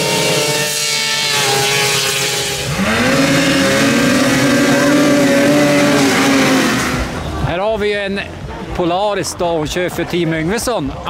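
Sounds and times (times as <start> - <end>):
snowmobile engines at full throttle: 0.0 - 7.5.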